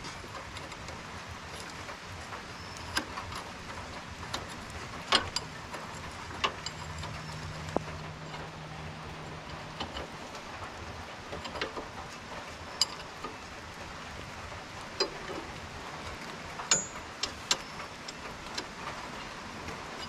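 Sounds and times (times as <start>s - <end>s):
light rain pattering on roof: 0.0s - 20.0s
wrench clinking on metal parts: 2.6s - 10.5s, 12.6s - 13.4s, 15.0s - 20.0s.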